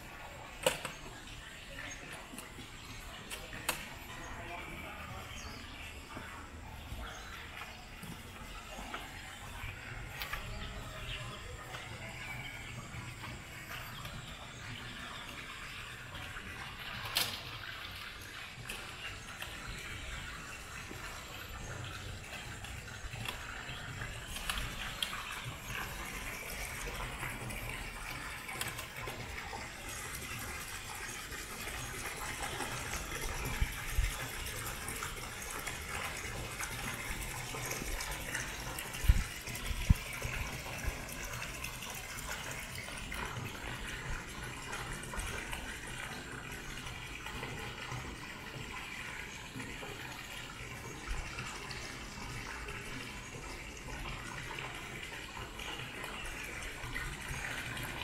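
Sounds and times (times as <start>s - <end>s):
wind rumble on microphone: 38.9s - 41.1s.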